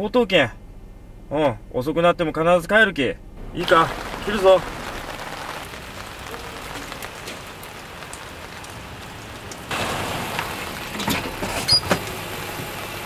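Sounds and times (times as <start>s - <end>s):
car pulling up: 3.3s - 13.0s
steady rain hissing: 3.3s - 13.0s
raindrop ticks: 3.4s - 13.0s.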